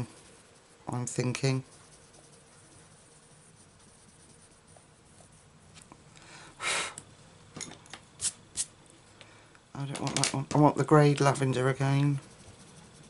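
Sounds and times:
pencil scratching on paper: 0.0 - 5.6, 11.3 - 13.0.

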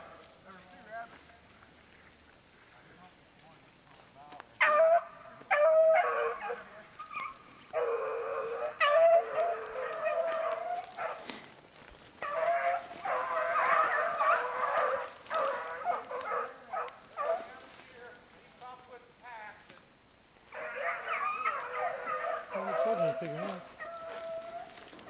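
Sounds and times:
beagles baying: 4.6 - 18.2, 20.5 - 25.0.

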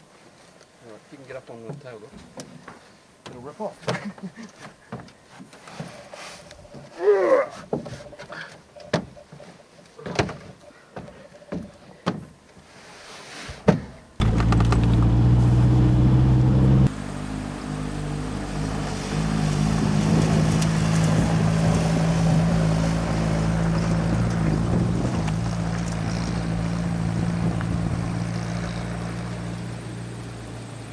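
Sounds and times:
knocks and thumps: 13.6 - 15.3
vehicle engine running: 14.2 - 30.9
tyre and wind noise: 19.5 - 29.7.

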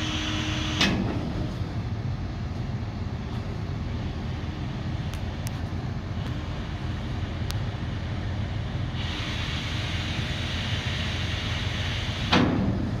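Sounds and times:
tractor engine running: 0.0 - 13.0
loud metallic clank: 12.3 - 12.9.

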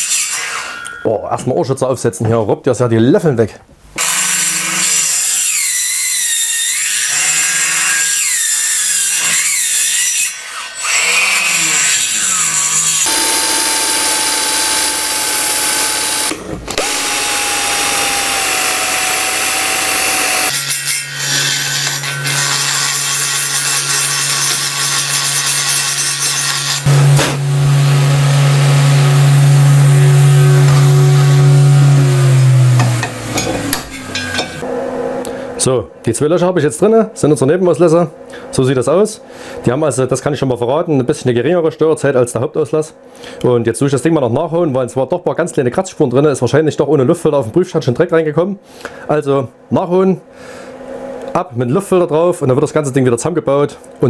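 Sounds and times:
rotary grinder whining: 10.6 - 34.6.

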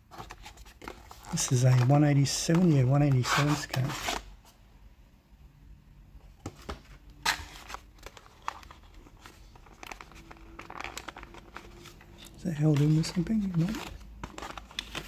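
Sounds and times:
plastic packaging tray crinkling: 7.2 - 15.0.

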